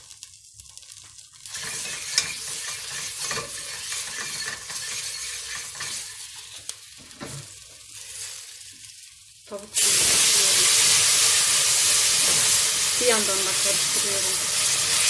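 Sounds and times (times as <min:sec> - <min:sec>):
roux sizzling: 0:00.0 - 0:15.0
whisk scraping metal pot: 0:01.5 - 0:06.5.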